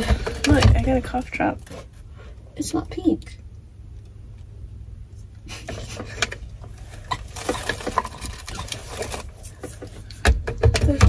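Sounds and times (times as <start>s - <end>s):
plastic crinkling: 6.8s - 10.0s.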